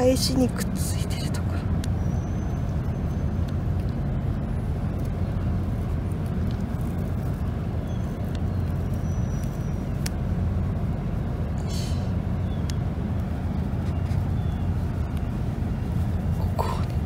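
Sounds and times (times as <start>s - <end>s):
low outdoor rumble: 0.0s - 17.0s
faint clicks: 9.4s - 10.2s.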